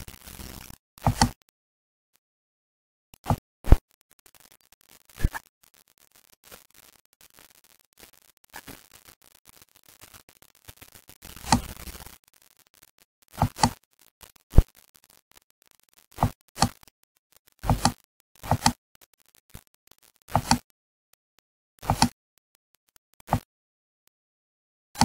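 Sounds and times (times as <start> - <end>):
computer mouse clicking: 1.0 - 1.4, 13.3 - 13.8, 16.2 - 17.0, 17.6 - 19.1, 20.3 - 20.7, 21.8 - 22.2.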